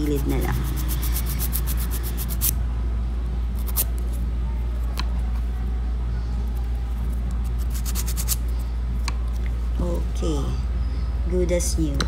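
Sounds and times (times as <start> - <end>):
steady low hum: 0.0 - 12.0
nail file stroking fingernail: 0.2 - 2.6, 7.6 - 8.4.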